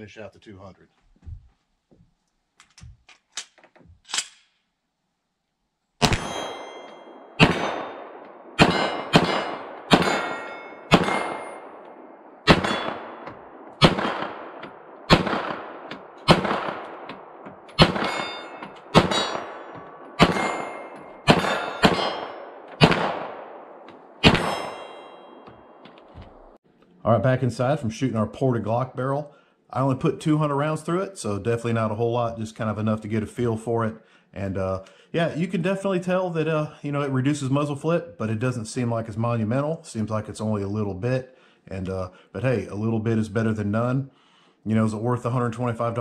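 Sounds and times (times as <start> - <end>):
pistol shots: 6.0 - 26.5
steel targets clanging: 8.6 - 11.8, 12.5 - 13.2, 17.7 - 22.5, 24.2 - 25.8.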